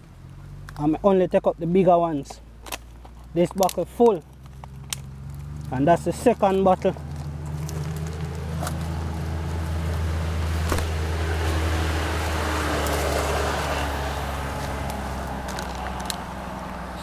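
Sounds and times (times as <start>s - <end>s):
low engine hum: 0.0s - 17.0s
vehicle passing road noise: 2.4s - 17.0s.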